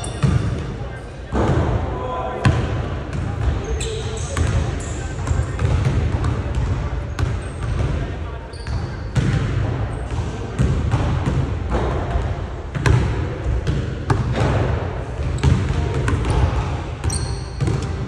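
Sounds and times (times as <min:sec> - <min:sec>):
sneaker squeaks: 0:00.0 - 0:00.6, 0:03.4 - 0:05.6, 0:07.1 - 0:07.8, 0:08.4 - 0:09.3, 0:15.2 - 0:15.8, 0:17.0 - 0:18.0
basketballs bouncing on hardwood floor: 0:04.4 - 0:08.0, 0:08.6 - 0:18.0.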